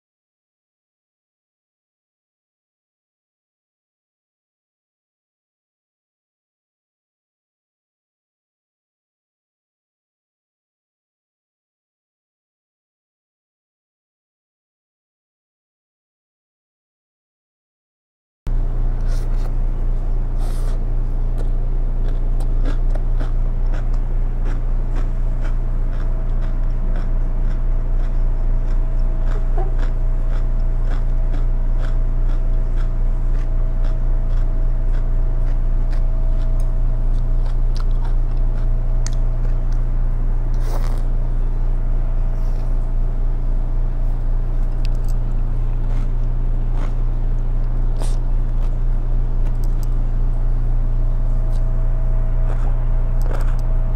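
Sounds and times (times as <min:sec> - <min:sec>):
steady low hum: 0:18.5 - 0:53.9
chewing crunchy salad: 0:18.6 - 0:53.9.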